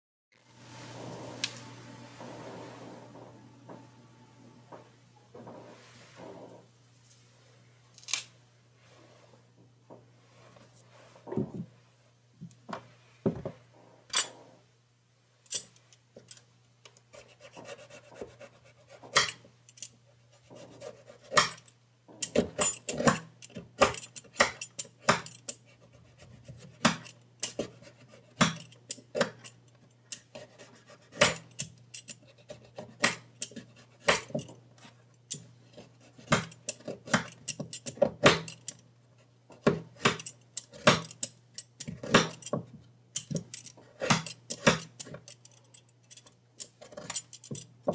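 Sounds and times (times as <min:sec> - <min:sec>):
knife scraping ginger on board: 0:17.1 - 0:19.4, 0:20.2 - 0:21.6, 0:23.8 - 0:29.4, 0:30.2 - 0:38.5, 0:46.6 - 0:47.3.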